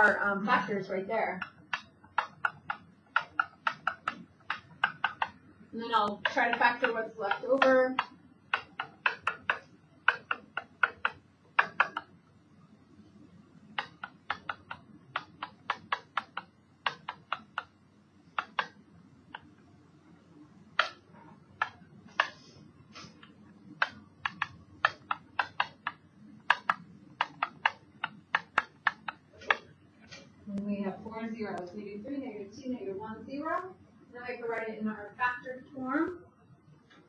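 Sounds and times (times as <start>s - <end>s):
faint low hum: 0.0s - 37.0s
stylus tapping on touchscreen: 1.2s - 12.2s, 13.2s - 19.7s, 20.6s - 30.3s.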